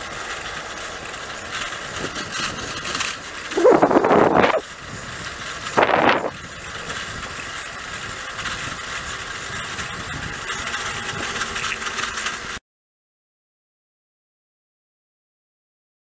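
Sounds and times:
bicycle rolling on asphalt: 0.0 - 12.6.

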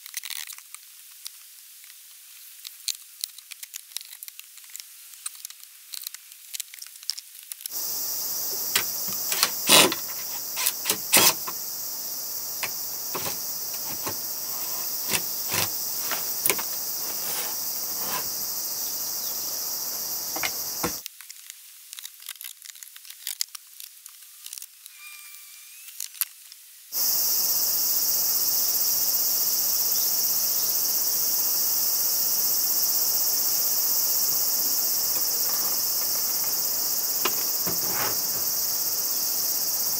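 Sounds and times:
insect chorus shrilling: 7.7 - 21.0, 24.9 - 26.1, 27.0 - 39.9
wooden boards knocking: 8.5 - 11.6, 12.6 - 18.4, 20.3 - 21.0, 37.2 - 38.5.

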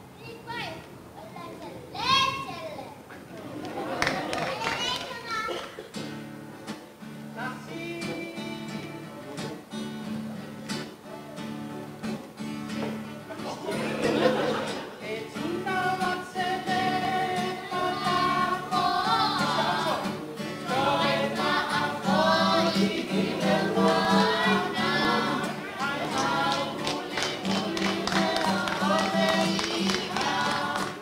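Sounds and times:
strummed acoustic guitar: 5.8 - 31.0
group of voices singing: 13.6 - 31.0.

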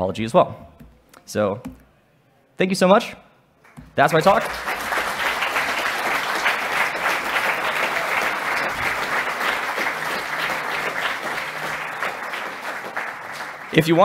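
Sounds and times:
audience applauding: 3.7 - 14.0.

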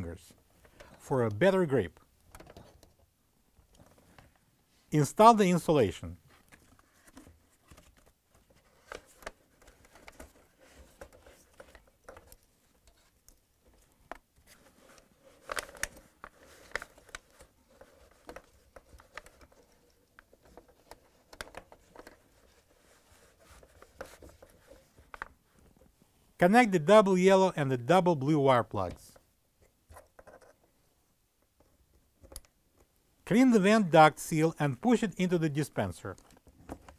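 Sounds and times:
rustling and scraping: 6.2 - 26.0.

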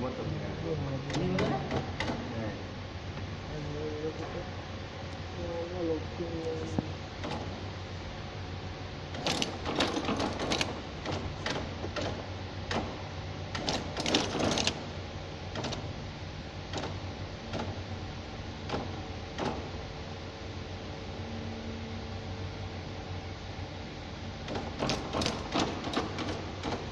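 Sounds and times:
steady low hum: 0.0 - 26.9
machine cams clattering: 9.2 - 14.9, 24.5 - 26.9.

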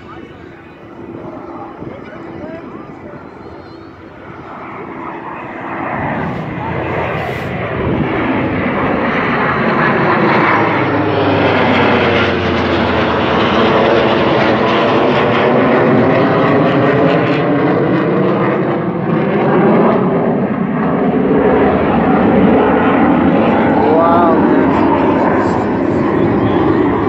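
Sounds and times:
aircraft engine drone: 0.0 - 27.0.

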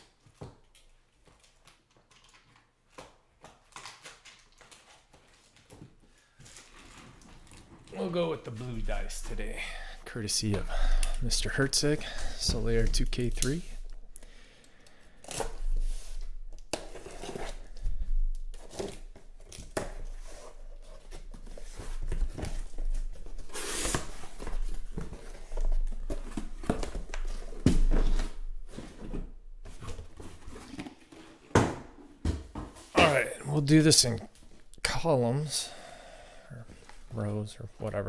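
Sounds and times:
boxes being set down: 26.0 - 32.9.

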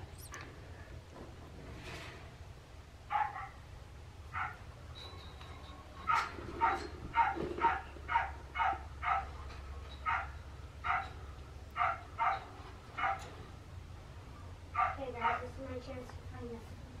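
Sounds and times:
dog barking: 3.1 - 3.6, 4.3 - 4.6, 6.1 - 9.4, 10.0 - 11.2, 11.8 - 13.3, 14.8 - 15.5.

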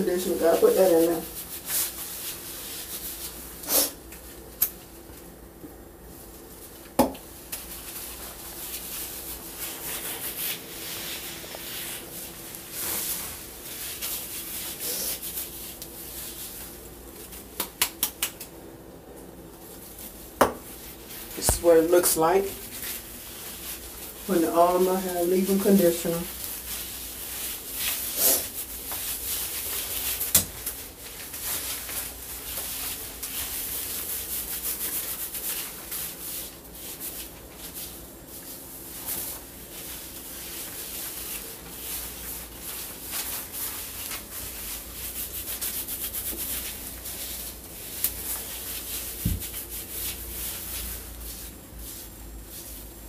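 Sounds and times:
hands rubbing damp hair: 0.0 - 4.8, 7.2 - 18.5, 19.6 - 53.0.

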